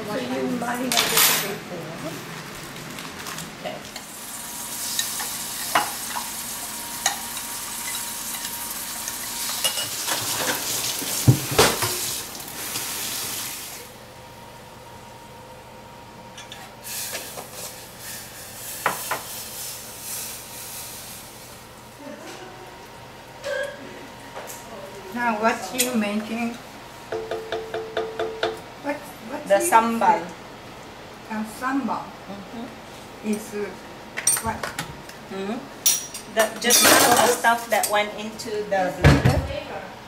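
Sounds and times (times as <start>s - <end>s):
food sizzling in a frying pan: 4.0s - 13.9s, 16.8s - 21.7s
pots and spoons knocking: 27.1s - 28.6s.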